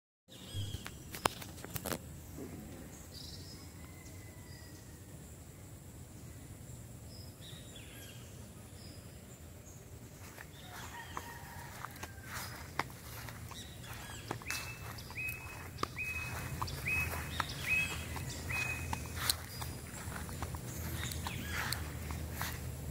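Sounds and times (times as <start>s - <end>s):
bird chirps: 0.3s - 1.4s, 12.3s - 22.6s
low steady rumble: 11.7s - 22.9s.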